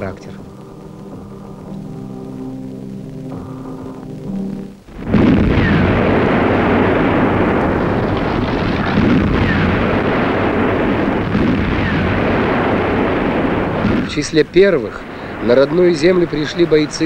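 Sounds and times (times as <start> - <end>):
battle artillery and explosions: 3.7 - 17.0.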